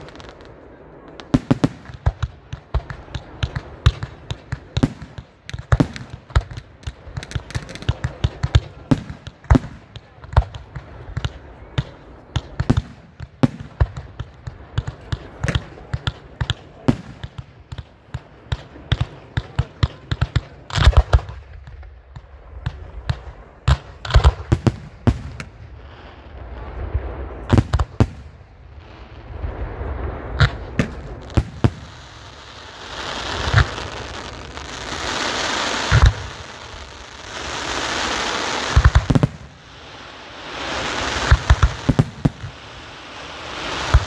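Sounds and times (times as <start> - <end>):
fireworks bangs and pops: 0.0 - 44.0
fountain fireworks hissing: 27.2 - 44.0.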